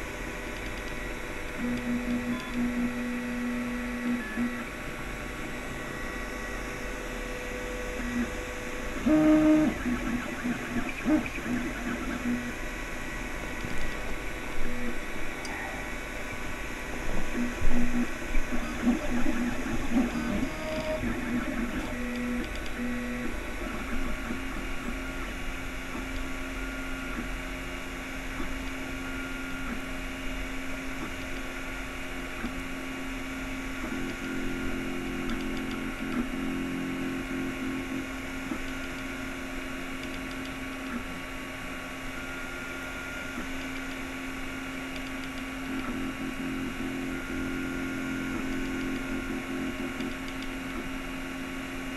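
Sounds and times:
steady hum: 0.0 - 51.9
stepper motors whining: 7.4 - 27.4.

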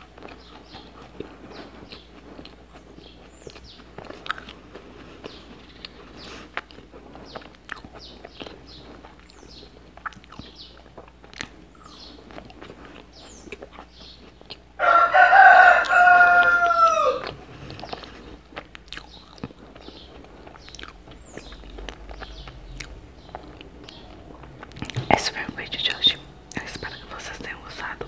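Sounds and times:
faint eating clicks and smacks: 0.0 - 28.0
rooster crowing: 14.8 - 17.4.

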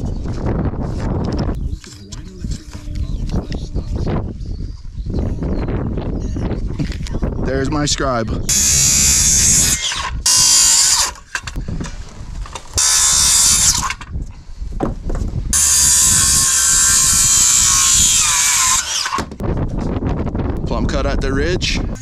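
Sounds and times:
circular saw cutting wood: 8.5 - 11.4, 12.8 - 14.0, 15.5 - 19.4.

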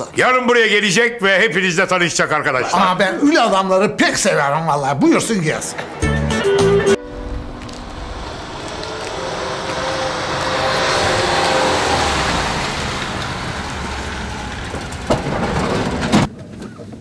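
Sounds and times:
van driving past: 4.3 - 16.3.

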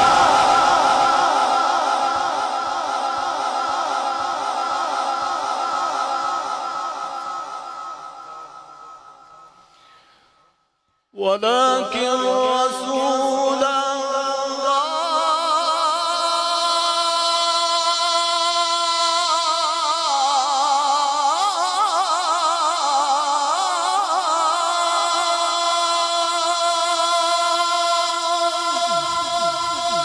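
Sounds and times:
man reciting melodically into microphone: 11.2 - 30.0.

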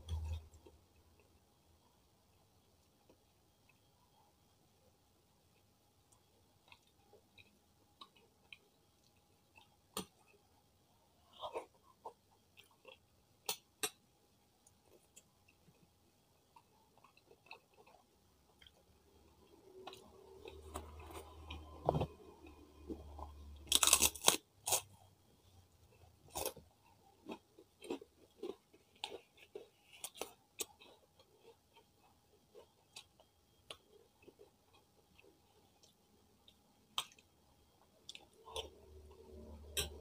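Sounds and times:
crackers being bitten and chewed: 19.8 - 25.0, 26.2 - 37.4.

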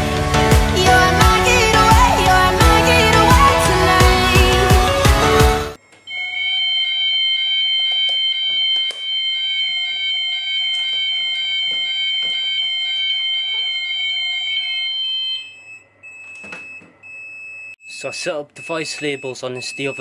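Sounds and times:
fire alarm electronic tone: 5.8 - 20.0.

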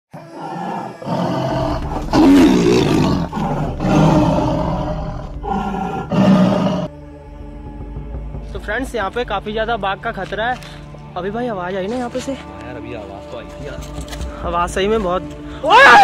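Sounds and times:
tiger roaring: 0.1 - 6.9.

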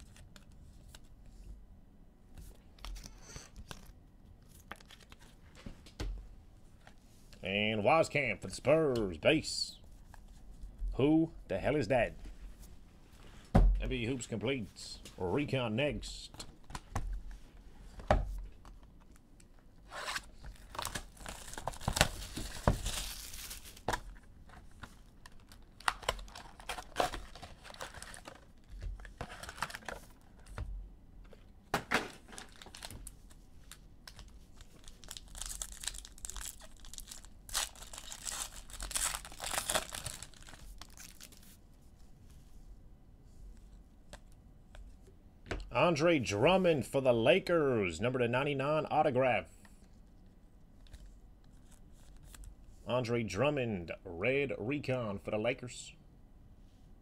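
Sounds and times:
card pack wrappers ripping: 19.9 - 24.2, 25.0 - 30.0, 32.3 - 33.1, 34.1 - 41.4.

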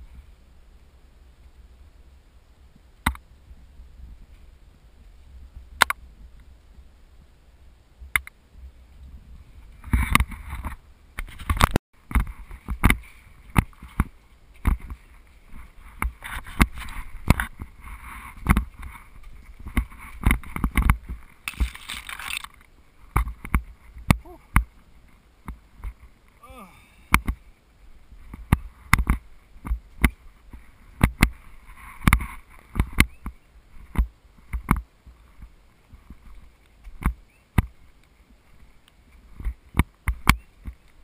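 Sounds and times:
footsteps: 9.0 - 26.4
scraping noise: 9.6 - 24.0
camera handling noise: 19.7 - 23.6.

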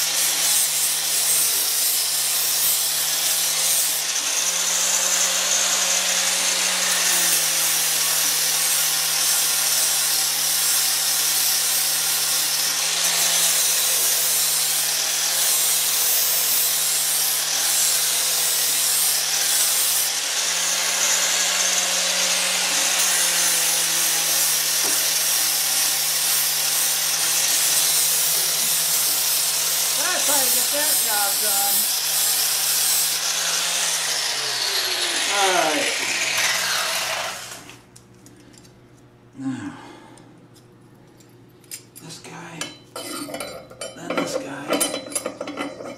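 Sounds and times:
angle grinder grinding steel: 0.0 - 37.8.

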